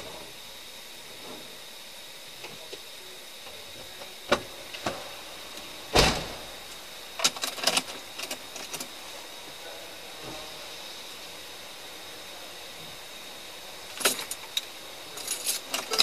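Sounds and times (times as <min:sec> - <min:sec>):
steady hiss: 0:00.0 - 0:16.0
heavy car door thud: 0:05.9 - 0:06.5.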